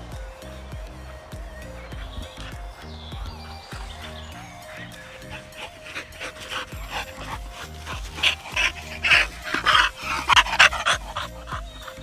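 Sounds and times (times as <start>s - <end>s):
background music: 0.0s - 12.0s
dog panting: 1.6s - 12.0s.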